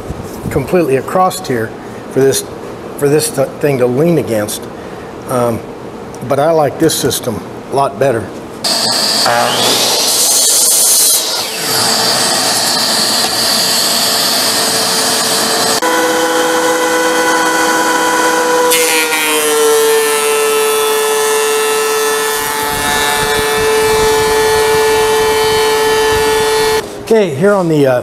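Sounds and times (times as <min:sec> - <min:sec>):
thickness planer running: 0:08.6 - 0:26.8
miter saw cutting wood: 0:08.7 - 0:26.8.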